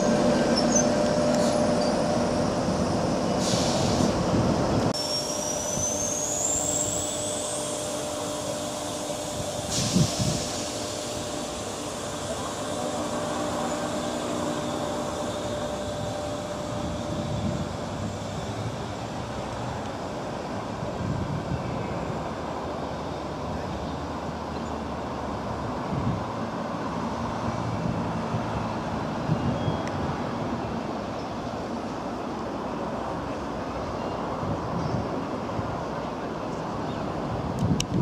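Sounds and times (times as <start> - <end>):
electric train motor whine: 0.0 - 3.4, 4.1 - 21.4.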